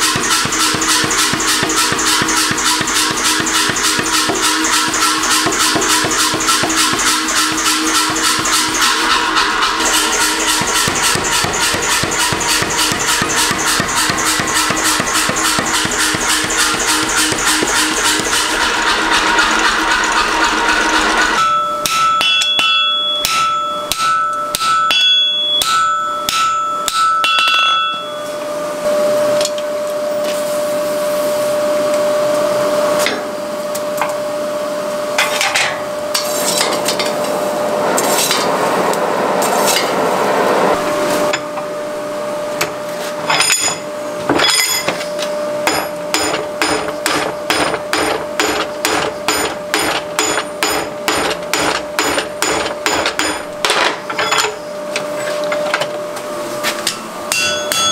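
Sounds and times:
coal forge rushing: 0.0 - 24.9, 35.2 - 41.6, 42.8 - 55.7
hammer striking iron on anvil: 0.0 - 28.4, 43.3 - 54.6, 56.8 - 57.9.

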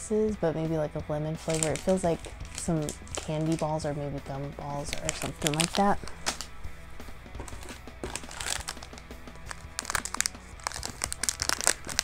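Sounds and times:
plastic wrappers crinkling: 1.4 - 3.8, 4.8 - 6.6, 7.4 - 12.0.

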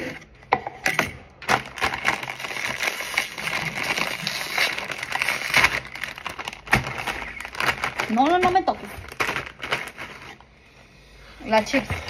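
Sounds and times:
chips rattling in bag: 1.5 - 10.4
foil snack bag crinkling: 1.5 - 10.5.

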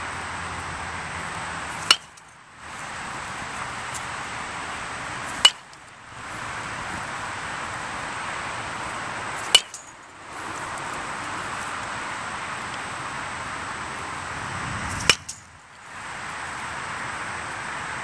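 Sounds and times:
metal bat hitting ball: 1.7 - 2.4, 5.2 - 5.8, 9.4 - 9.9, 14.9 - 15.5.

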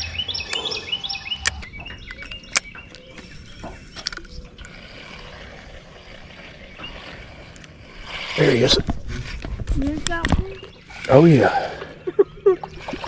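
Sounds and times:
fishing reel clicks and knocks: 1.4 - 4.4.

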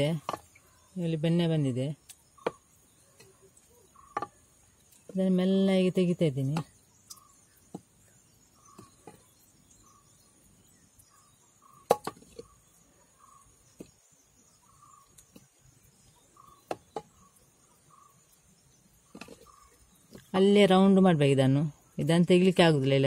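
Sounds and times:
stick knocking against clay pot: 0.0 - 0.6, 2.0 - 3.4, 4.0 - 4.4, 11.8 - 12.5, 16.4 - 17.3.

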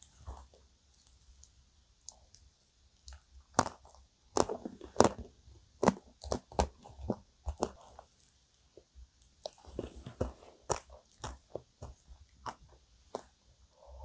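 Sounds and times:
wet mouth clicks and smacks: 3.0 - 5.1.

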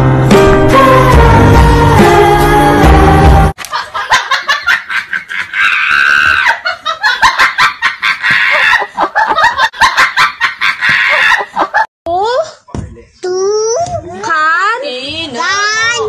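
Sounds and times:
loud hearty laughter: 3.6 - 11.9.

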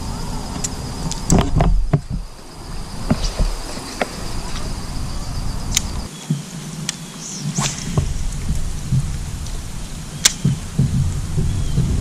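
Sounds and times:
high insect trill: 0.0 - 12.0
low rumble: 7.3 - 12.0.

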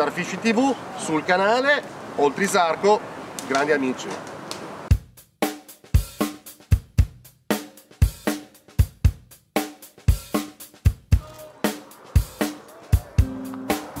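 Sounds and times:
drum kit beat: 4.9 - 14.0.

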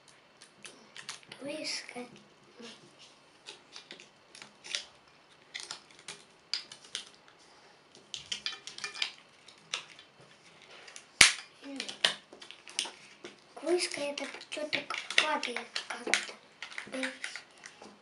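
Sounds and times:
plastic crackles: 3.4 - 18.0
loud sharp snap: 11.2 - 11.5.

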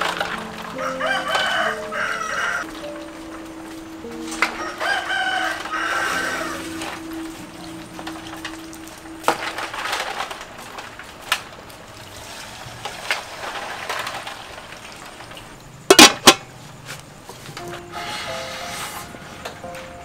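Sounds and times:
metal pot lid clanking: 15.9 - 16.5
pots and kitchenware knocking: 15.9 - 16.5.

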